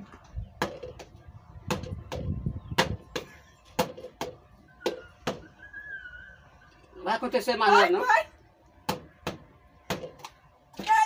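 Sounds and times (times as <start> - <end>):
faint wavering whistle tone: 4.6 - 6.9.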